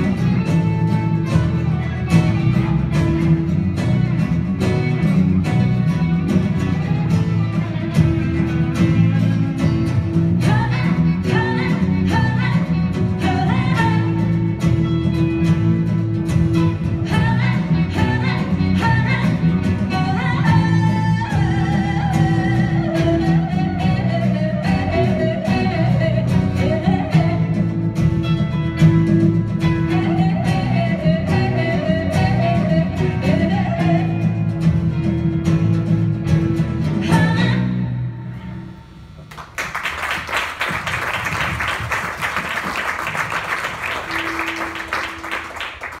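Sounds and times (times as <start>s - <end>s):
live band with guitars: 0.0s - 46.0s
woman singing: 10.4s - 14.6s, 17.0s - 27.8s, 29.7s - 34.5s, 37.0s - 38.1s
audience applause: 39.2s - 46.0s.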